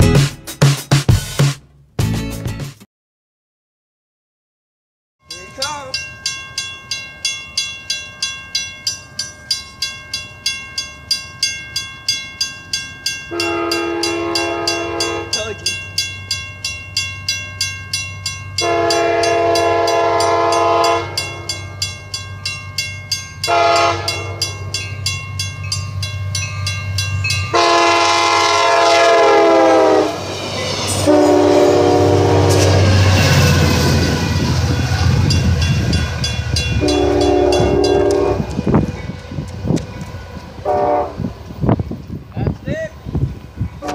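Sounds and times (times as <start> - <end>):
railroad crossing bell ringing: 5.2 - 42.0
train rumbling past: 5.3 - 43.9
train horn blasts: 13.3 - 15.6, 18.6 - 21.6, 23.5 - 24.5, 27.5 - 30.2, 30.9 - 33.0, 36.7 - 39.4, 40.6 - 41.3.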